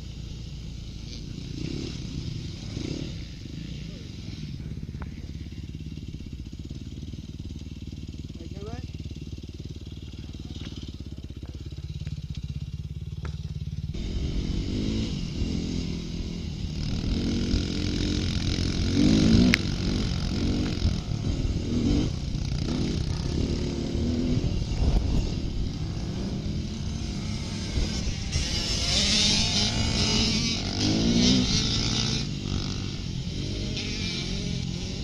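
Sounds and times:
motorcycle engine idling and revving: 0:00.0 - 0:35.0.

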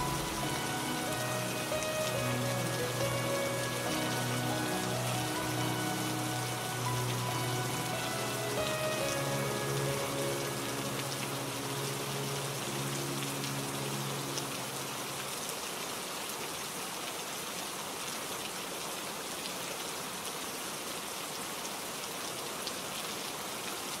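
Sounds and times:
low held musical notes: 0:00.0 - 0:15.2
steady rain falling: 0:00.0 - 0:24.0.

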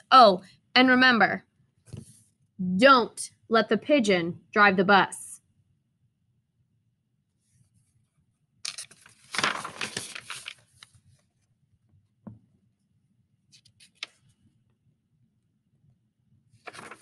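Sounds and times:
paper pages rustling: 0:08.6 - 0:11.4, 0:13.6 - 0:14.4, 0:16.6 - 0:17.0.

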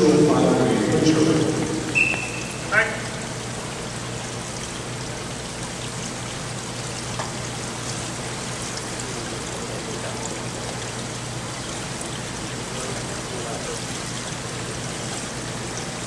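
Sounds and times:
low hum: 0:00.0 - 0:03.8
water rushing and trickling: 0:00.0 - 0:16.0.

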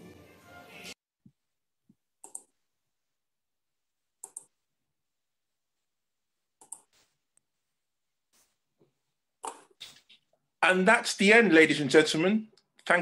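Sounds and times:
computer mouse clicks: 0:02.2 - 0:02.5, 0:04.2 - 0:04.5, 0:06.6 - 0:07.0, 0:09.4 - 0:10.2.

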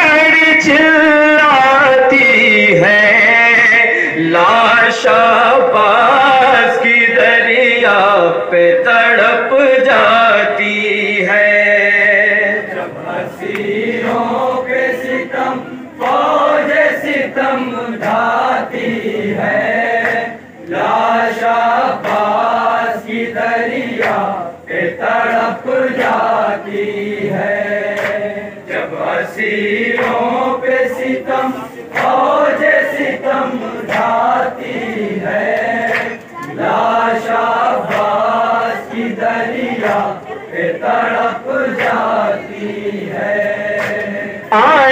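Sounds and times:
men chanting a lament in chorus: 0:00.0 - 0:44.9.

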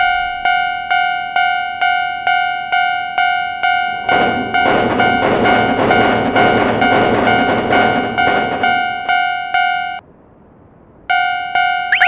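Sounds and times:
railroad crossing bell: 0:00.0 - 0:04.0, 0:06.8 - 0:10.0, 0:11.1 - 0:12.0
passing train rolling: 0:03.6 - 0:10.0.

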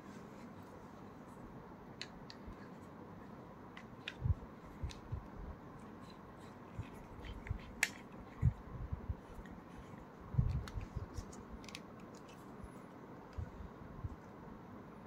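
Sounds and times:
gadgets and packaging handled: 0:02.3 - 0:12.9.

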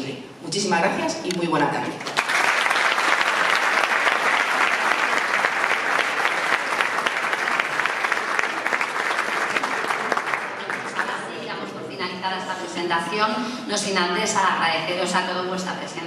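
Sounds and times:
audience applauding: 0:02.0 - 0:11.4.

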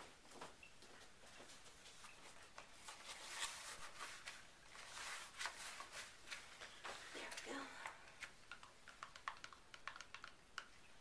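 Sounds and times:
handling scrapes and rustles: 0:02.7 - 0:07.1.

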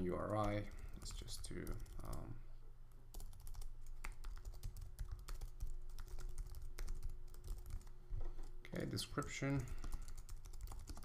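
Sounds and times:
faint steady hum: 0:00.0 - 0:11.0
keyboard typing: 0:00.1 - 0:02.2, 0:03.1 - 0:07.9, 0:09.7 - 0:11.0.

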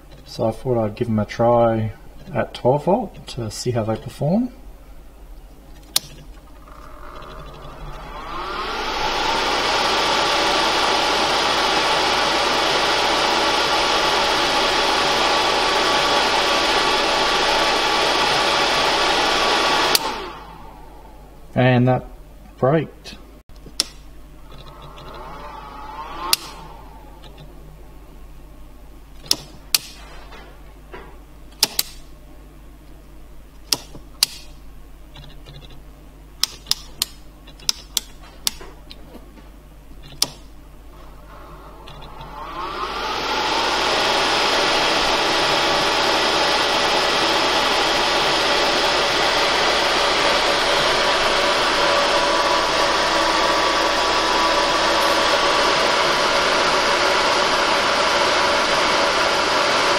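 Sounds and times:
cooling fan spinning: 0:01.8 - 0:59.9
sharp clicks: 0:23.5 - 0:25.2, 0:27.2 - 0:27.5, 0:31.5 - 0:32.0, 0:33.6 - 0:35.8.

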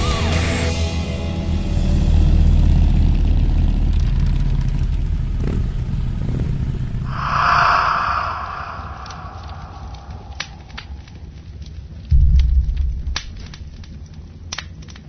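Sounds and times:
loud whoosh: 0:07.1 - 0:11.1.

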